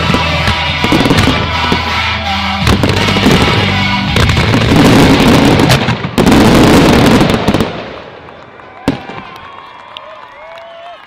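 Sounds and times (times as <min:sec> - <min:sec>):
music: 0:00.0 - 0:05.3
sharp bangs: 0:00.0 - 0:07.9
fireworks bursting and crackling: 0:00.0 - 0:09.8.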